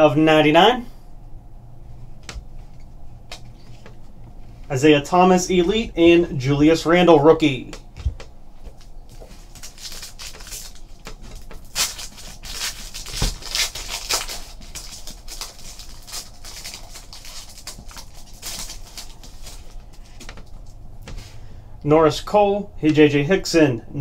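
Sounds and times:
foil wrapper crinkling and tearing: 8.8s - 20.8s.

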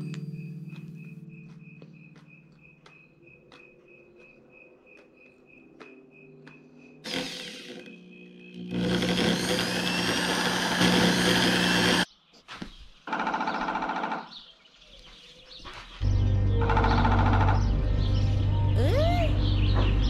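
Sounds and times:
power drill whirring: 7.0s - 12.1s.

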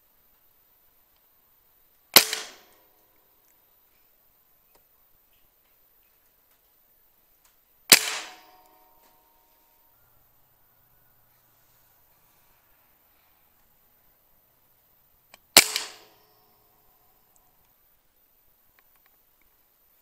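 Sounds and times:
air rifle shots: 2.1s - 3.0s, 7.9s - 8.8s, 15.3s - 16.4s.

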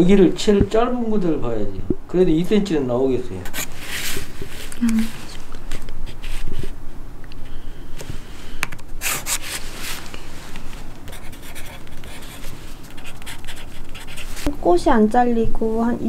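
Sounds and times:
pencil scratching on paper: 3.5s - 4.7s, 9.0s - 9.7s, 11.1s - 14.5s.

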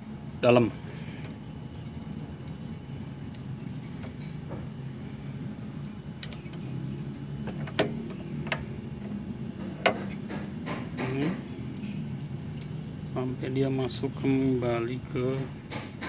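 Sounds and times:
steady low hum: 0.0s - 16.0s
sharp metallic clicks: 5.8s - 6.7s.

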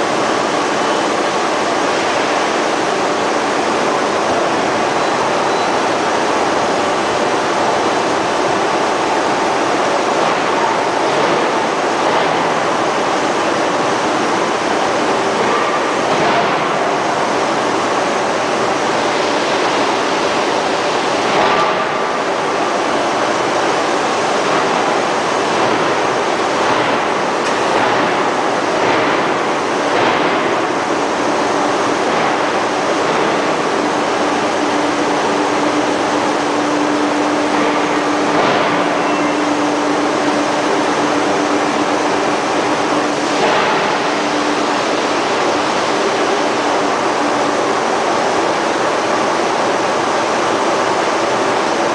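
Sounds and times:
rolling mill rumble and hiss: 0.0s - 51.9s
loud mechanical knocks: 10.0s - 17.9s, 21.2s - 22.3s, 24.4s - 47.1s.

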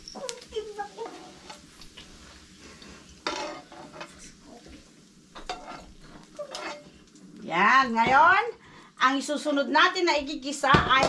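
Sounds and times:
frying sizzle: 0.0s - 11.0s
metal spoon scraping a frying pan: 3.2s - 4.4s, 5.4s - 6.9s.

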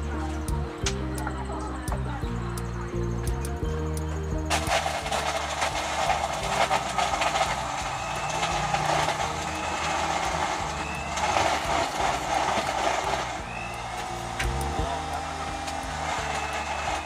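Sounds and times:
blender crushing ice: 4.5s - 17.0s
ice rattling in blender jar: 4.5s - 17.0s.

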